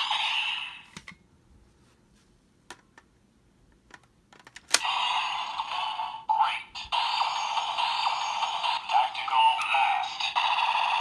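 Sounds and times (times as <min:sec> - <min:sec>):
plastic toy gun clicks: 0:04.4 - 0:04.9.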